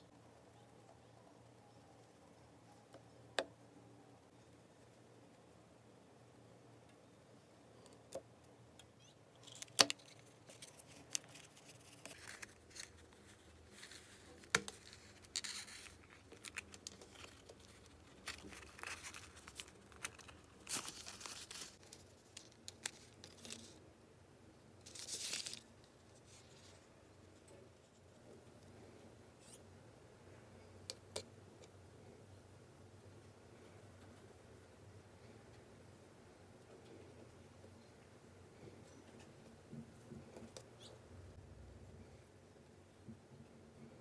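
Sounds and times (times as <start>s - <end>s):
paper tearing and crinkling: 9.5s - 23.7s.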